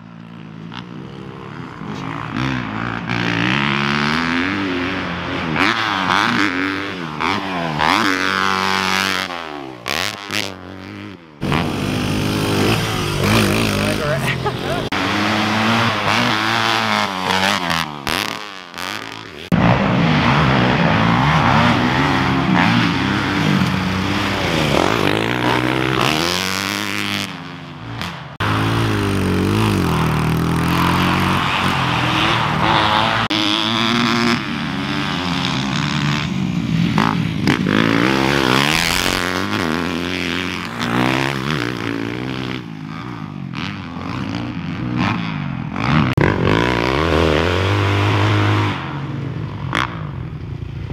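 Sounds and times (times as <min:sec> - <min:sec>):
dirt bike engines revving: 0:00.0 - 0:50.9.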